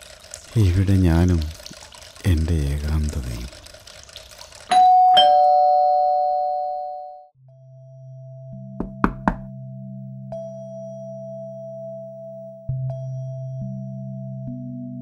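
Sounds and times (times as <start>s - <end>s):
doorbell ding-dong chime: 4.7s - 7.3s
knocking on wooden door: 8.8s - 9.5s.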